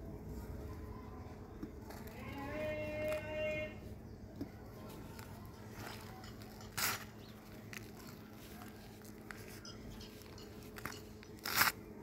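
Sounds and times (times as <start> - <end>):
crunchy rustles: 1.8 - 12.0
hands crumbling powdery dirt: 4.4 - 11.9.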